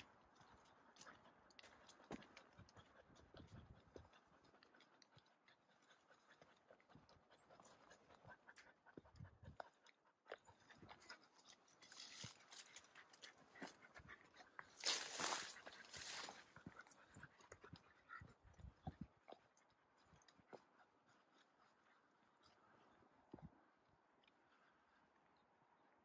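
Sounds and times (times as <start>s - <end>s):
dog panting: 0.0s - 23.4s
footsteps crunching on dirt: 14.8s - 16.8s.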